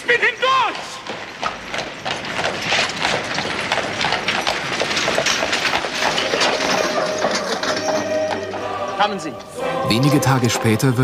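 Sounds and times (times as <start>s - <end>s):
crowd shuffling and clattering: 0.8s - 8.7s.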